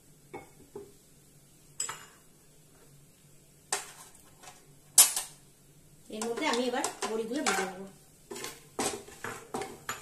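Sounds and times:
bowls and wok clinking: 0:01.8 - 0:02.3, 0:06.2 - 0:10.0.

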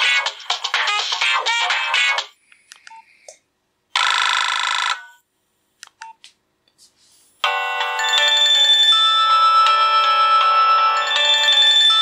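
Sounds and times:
polyphonic ringtone melody: 0:07.4 - 0:12.0.

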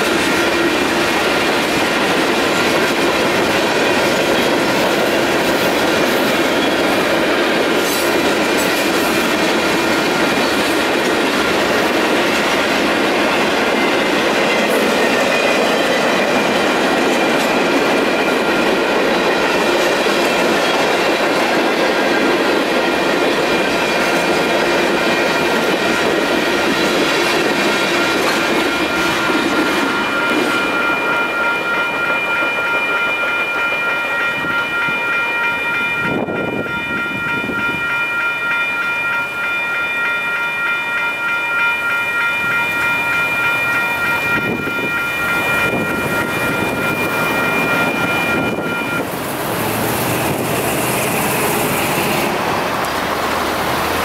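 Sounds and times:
freight train wheels clattering: 0:00.0 - 0:38.2
crossing warning bells ringing: 0:00.0 - 0:54.0.

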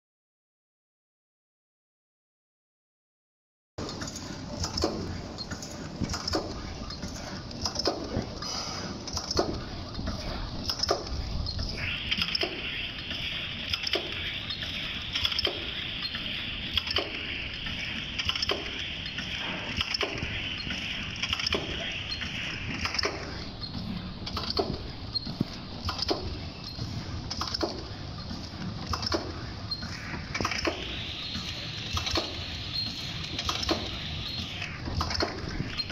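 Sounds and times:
packing machine clicking and clacking: 0:03.8 - 0:08.4, 0:18.1 - 0:20.4, 0:30.1 - 0:35.9.

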